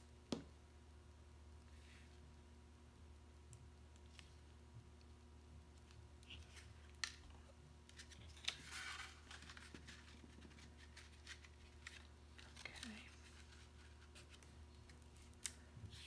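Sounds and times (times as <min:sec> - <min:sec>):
low steady hum: 0:00.0 - 0:16.0
paper rustling: 0:07.9 - 0:16.0.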